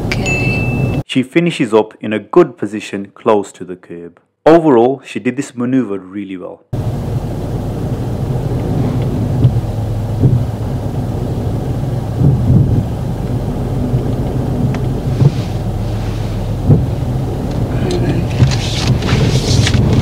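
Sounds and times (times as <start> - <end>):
car engine humming: 6.8 - 20.0.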